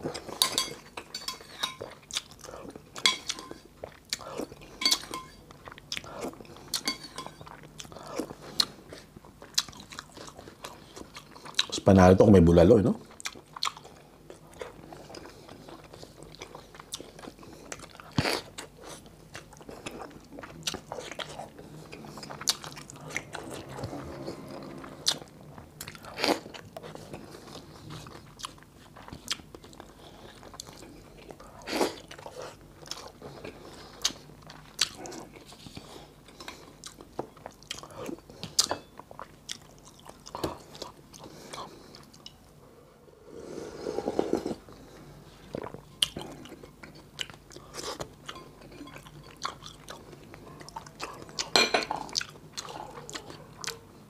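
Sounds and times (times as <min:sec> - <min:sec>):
crunching and wet chewing: 0:00.0 - 0:11.8, 0:13.0 - 0:42.4, 0:44.2 - 0:54.0.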